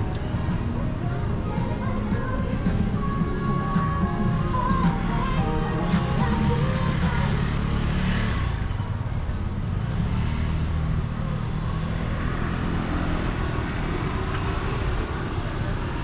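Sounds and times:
music from a shop: 0.0s - 8.4s
street traffic rumble: 0.0s - 16.0s.

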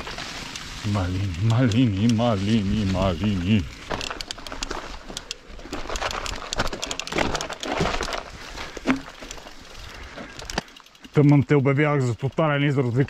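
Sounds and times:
rustling brush: 0.0s - 6.8s
bike clicks and knocks: 0.0s - 11.6s.

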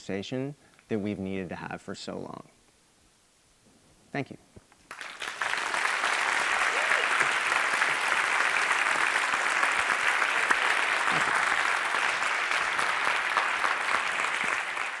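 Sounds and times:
audience applauding: 4.9s - 15.0s.

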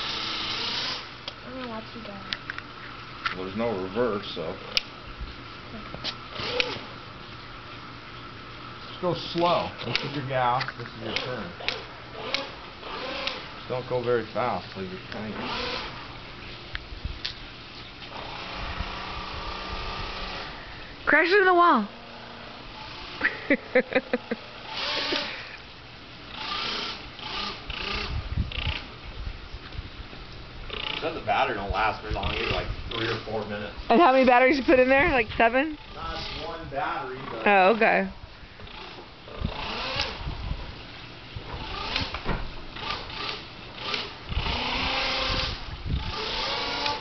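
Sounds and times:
electric motor and propeller whirring: 0.0s - 8.0s, 9.0s - 47.0s
people laughing: 23.2s - 25.6s.

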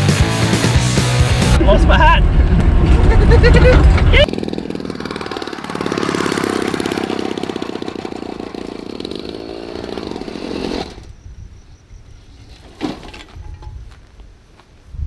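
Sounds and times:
motor vehicle engine running: 1.2s - 10.3s.

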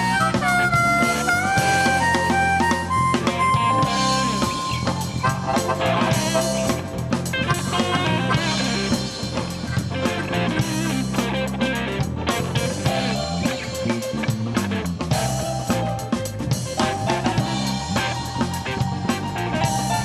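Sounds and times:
harmonica long note: 0.0s - 9.4s, 16.8s - 20.0s
bass guitar: 0.0s - 20.0s
drum kit: 0.0s - 20.0s
electric guitar licks: 0.0s - 20.0s
keyboard: 0.0s - 20.0s.

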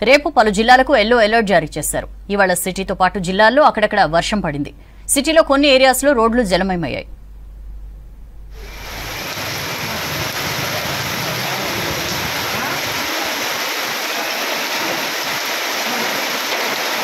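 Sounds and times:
car driving through water: 8.6s - 17.0s
heavy rain on wet street: 8.6s - 17.0s.

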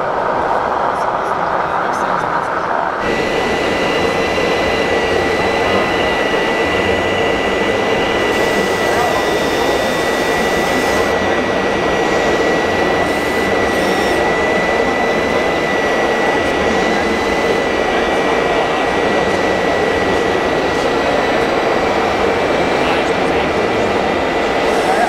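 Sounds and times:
electric motor whining: 3.0s - 25.0s.

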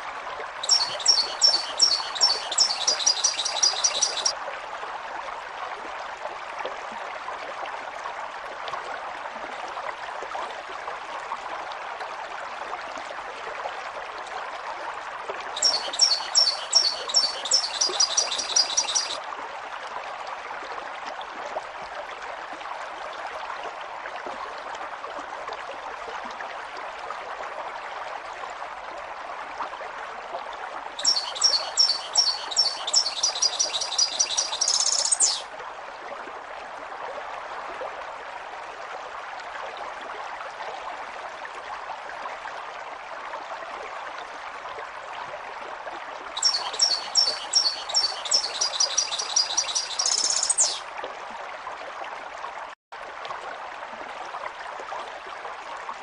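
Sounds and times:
stream water rushing: 0.0s - 25.4s, 30.5s - 56.0s
high bird chirps: 0.6s - 4.3s, 15.6s - 19.2s, 31.0s - 35.4s, 46.4s - 50.8s.

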